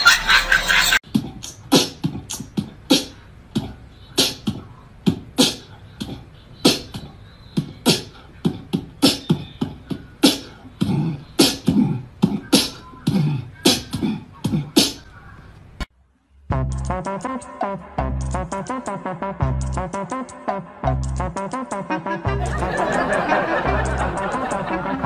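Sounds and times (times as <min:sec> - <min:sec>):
beatbox-like clicks and pops: 0:01.0 - 0:15.0.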